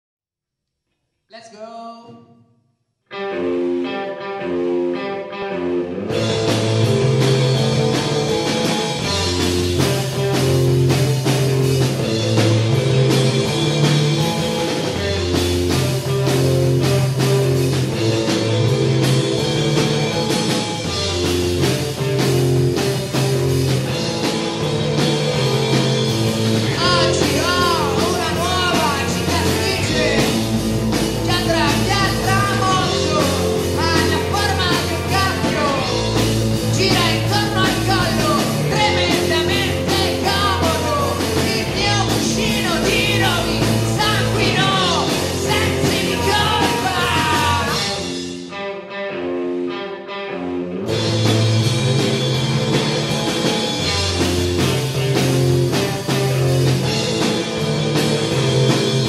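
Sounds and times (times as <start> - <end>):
electric guitar: 3.1 - 59.0
rock band playing live: 3.1 - 59.0
person singing: 26.7 - 30.6, 31.2 - 36.0, 36.7 - 48.2.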